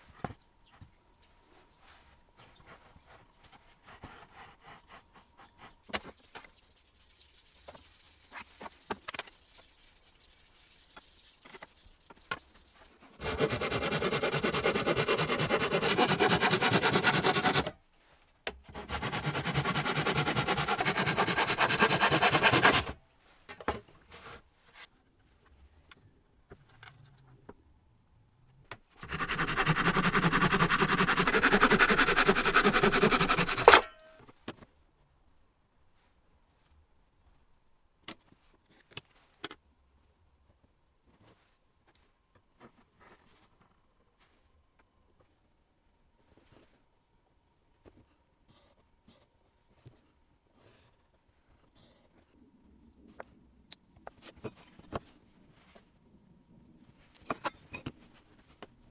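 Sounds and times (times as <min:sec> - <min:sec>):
hand saw cutting wood: 0:13.2 - 0:17.8, 0:18.7 - 0:23.0, 0:29.0 - 0:33.9.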